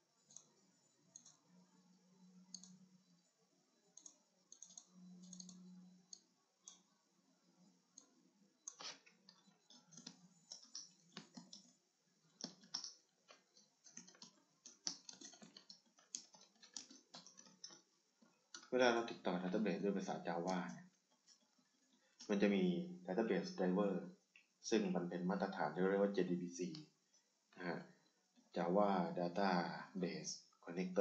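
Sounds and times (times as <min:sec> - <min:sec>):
faint low hums: 0:00.0 - 0:31.0
computer keyboard typing: 0:00.2 - 0:03.0, 0:03.8 - 0:06.9, 0:07.9 - 0:17.9
computer mouse clicks: 0:00.2 - 0:03.2, 0:03.8 - 0:06.9, 0:07.9 - 0:17.9.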